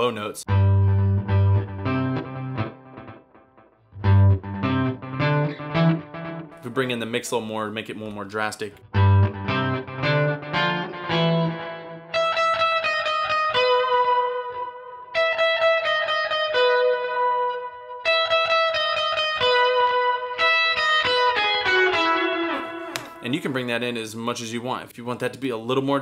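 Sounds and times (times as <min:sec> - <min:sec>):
electric guitar with octave effect: 0:00.0 - 0:06.7, 0:08.8 - 0:23.3.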